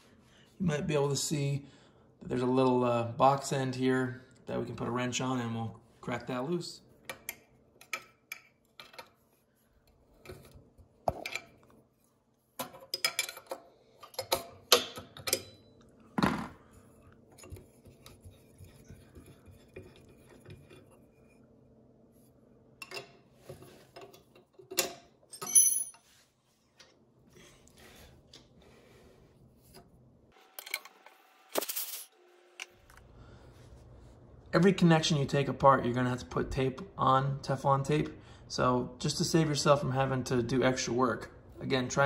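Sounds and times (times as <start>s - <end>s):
wrench and metal fittings clinking: 24.8s - 26.1s.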